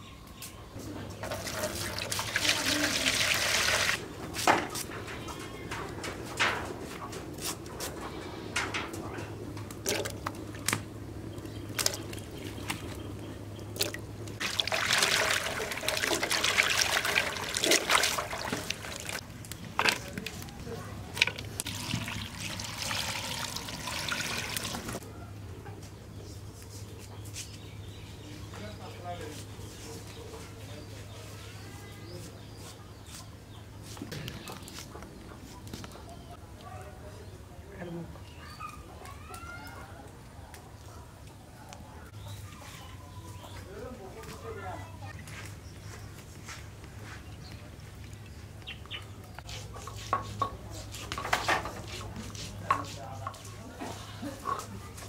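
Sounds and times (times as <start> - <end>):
water trickling and splashing: 1.1 - 4.0, 9.8 - 19.2, 19.8 - 25.0
water pouring: 1.2 - 4.0, 13.7 - 19.2, 21.1 - 25.0.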